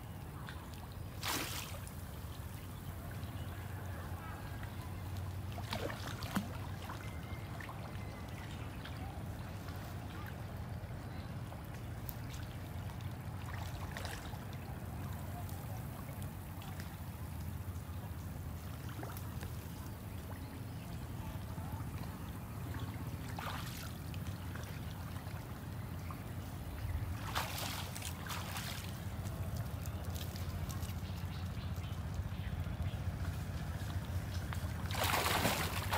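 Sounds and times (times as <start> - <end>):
water splashing and trickling: 0.0 - 35.9
steady low rumble: 19.4 - 35.9.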